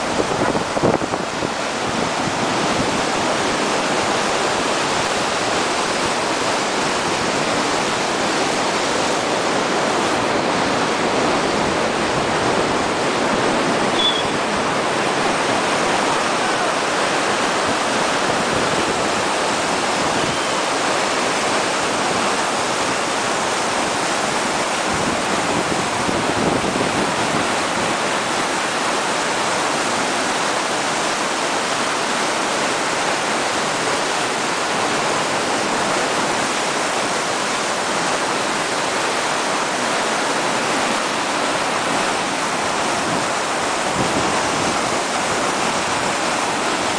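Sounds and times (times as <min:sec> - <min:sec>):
river rushing: 0:00.0 - 0:46.9.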